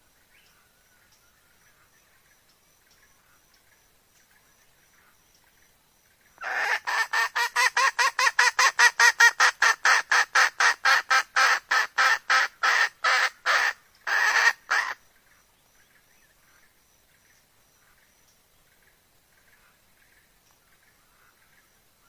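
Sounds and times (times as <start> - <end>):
hen cackling: 6.4 - 15.0.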